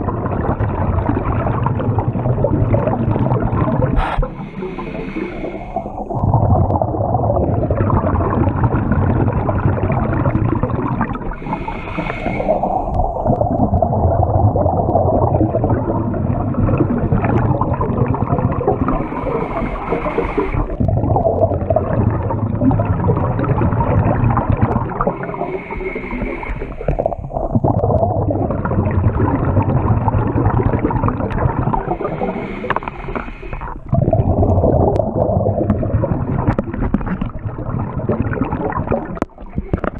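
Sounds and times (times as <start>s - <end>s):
gurgling exhaust bubbles: 0.0s - 39.9s
regulator inhale hiss: 4.0s - 6.1s, 11.3s - 13.1s, 18.9s - 20.7s, 25.1s - 27.3s, 31.8s - 33.8s.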